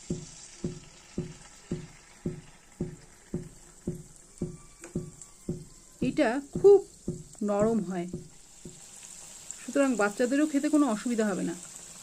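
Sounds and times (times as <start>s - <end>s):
soft ringing knocks: 0.0s - 8.8s
batter sizzling in hot fat: 0.0s - 12.0s.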